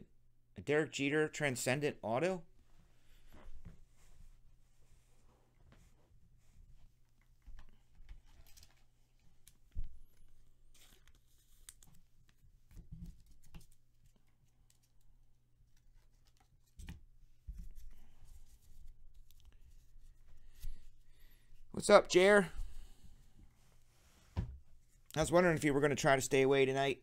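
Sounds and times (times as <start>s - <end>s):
cards rustling and sliding: 8.2s - 15.0s.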